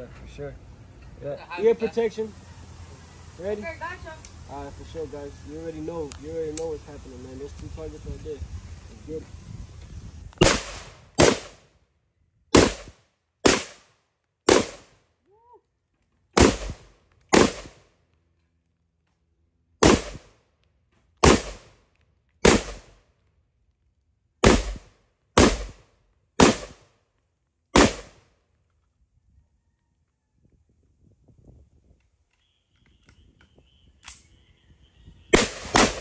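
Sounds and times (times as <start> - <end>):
single gunshots: 10.4 - 11.6, 12.5 - 13.8, 14.5 - 14.9, 16.4 - 17.8, 19.8 - 20.3, 21.2 - 21.8, 22.4 - 23.0, 24.4 - 25.8, 26.4 - 26.9, 27.8 - 28.2, 35.3 - 36.0.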